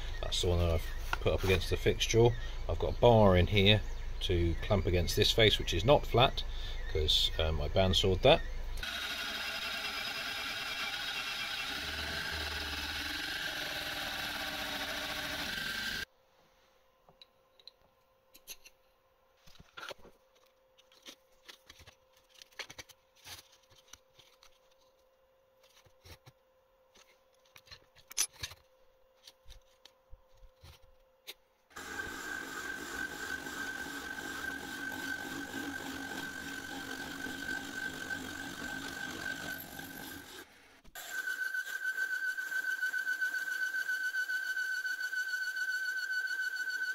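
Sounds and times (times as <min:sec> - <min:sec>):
milling machine cutting metal: 0:08.8 - 0:16.0, 0:31.8 - 0:43.8.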